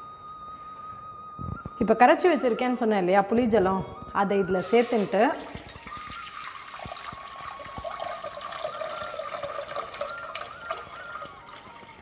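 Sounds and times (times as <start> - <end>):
water pouring into metal pot: 4.6 - 12.0.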